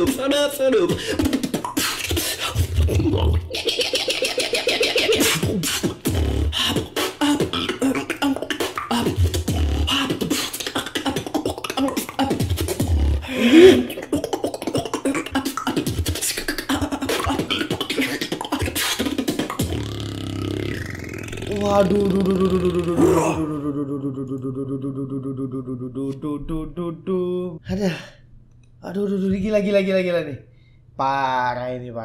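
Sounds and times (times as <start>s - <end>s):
beatboxing: 0.0s - 27.6s
rising vocal sound: 2.5s - 27.6s.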